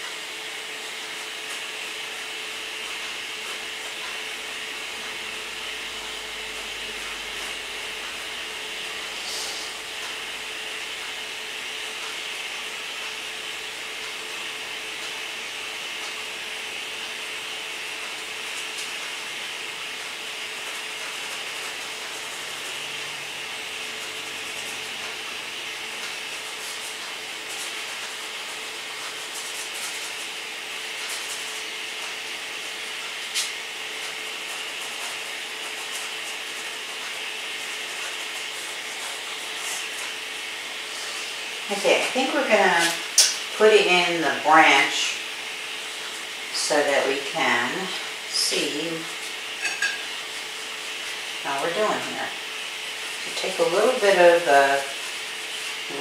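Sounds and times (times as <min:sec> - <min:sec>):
steady hiss: 0:06.8 - 0:12.8, 0:18.1 - 0:56.0.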